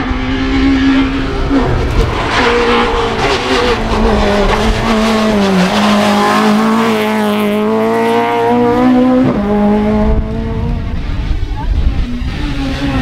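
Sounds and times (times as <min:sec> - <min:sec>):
race car engine at high revs: 0:00.0 - 0:13.0.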